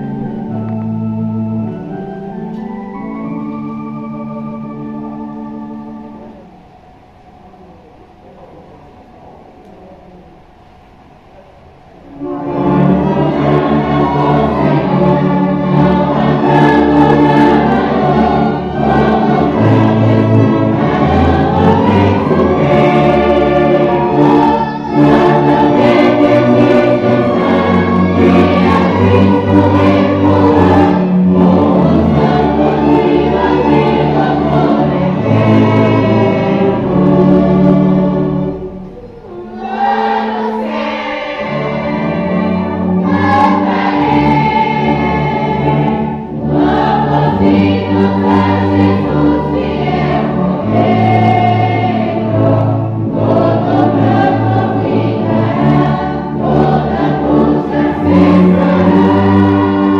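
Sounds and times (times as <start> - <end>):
congregation singing a hymn: 0.0 - 9.1, 11.1 - 59.9
church orchestra with brass: 0.0 - 59.9.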